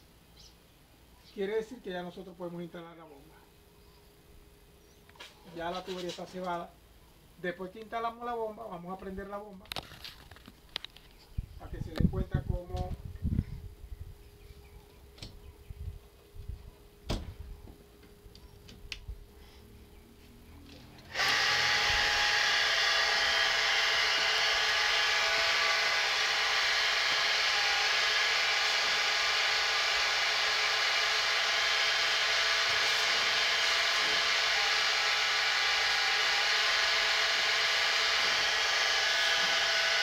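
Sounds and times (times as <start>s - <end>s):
electric water pump whining: 21.0s - 40.0s.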